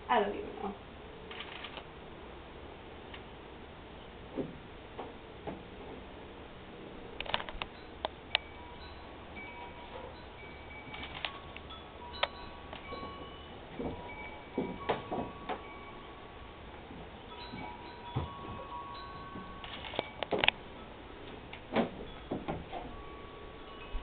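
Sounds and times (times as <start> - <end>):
soft chime tones: 7.7 - 21.5, 22.1 - 24.0.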